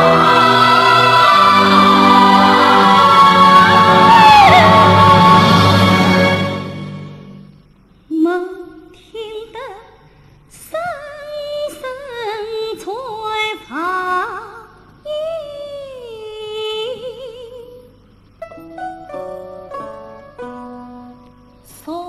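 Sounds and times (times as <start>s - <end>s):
woman singing opera style: 0.0s - 6.7s, 8.1s - 9.9s, 10.6s - 17.9s, 20.4s - 22.0s.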